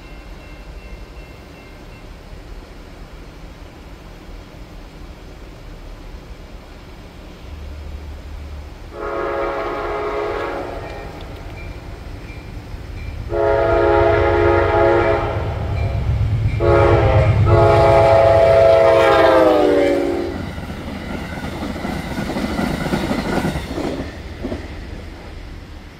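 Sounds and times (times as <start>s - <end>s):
train passing at speed: 0.0s - 25.9s
train horn blasts: 8.9s - 11.3s, 13.2s - 20.6s.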